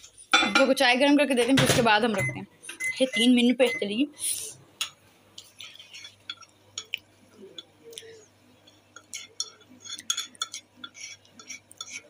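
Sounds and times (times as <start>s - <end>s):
metal spoon scraping and clinking mug: 8.7s - 12.0s.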